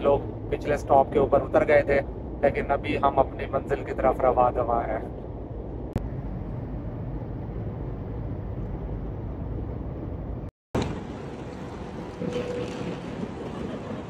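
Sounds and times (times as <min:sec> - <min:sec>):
low rumbling noise with hiss: 0:00.0 - 0:14.0.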